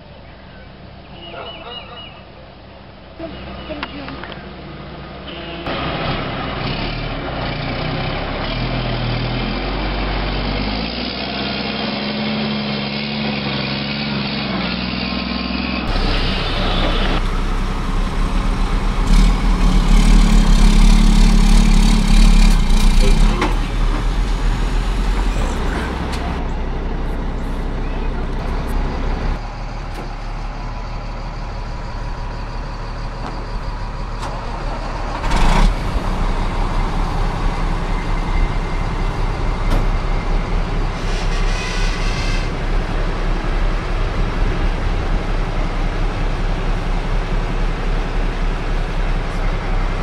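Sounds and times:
heavy diesel engines running: 0:00.0 - 0:50.0
loud burst of noise: 0:15.9 - 0:26.0.

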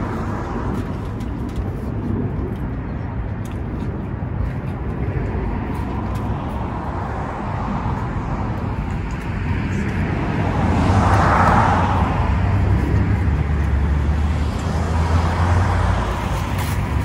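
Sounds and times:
road traffic rumble: 0:00.0 - 0:17.0
vehicle passing: 0:05.2 - 0:17.0.

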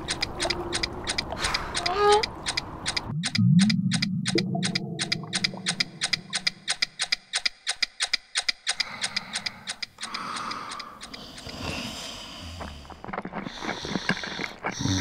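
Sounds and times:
rapid even ticking: 0:00.0 - 0:12.0.

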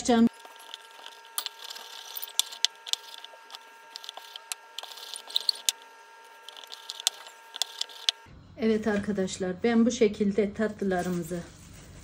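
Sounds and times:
rolling pin rolling dough: 0:00.3 - 0:08.2.

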